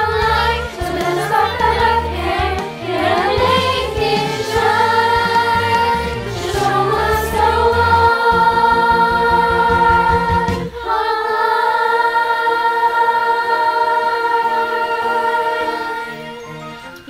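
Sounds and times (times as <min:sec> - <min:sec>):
low instrumental accompaniment: 0:00.0 - 0:10.8
girls choir singing: 0:00.0 - 0:16.7.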